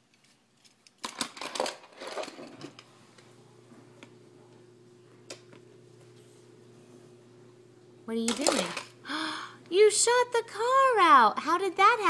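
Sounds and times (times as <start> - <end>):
plastic toy clicks and rattles: 0.6 - 2.4, 8.3 - 8.9
steady low hum: 2.4 - 12.0.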